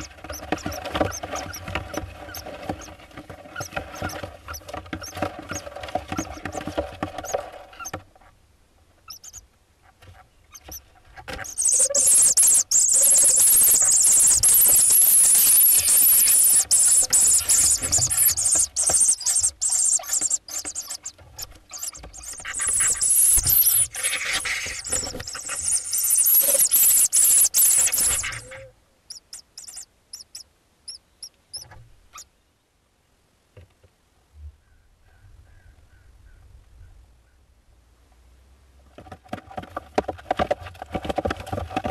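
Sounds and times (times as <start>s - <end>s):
chicks hissing calls: 0.0s - 1.7s, 11.4s - 31.7s
short high chirps: 11.5s - 21.1s, 21.7s - 31.0s.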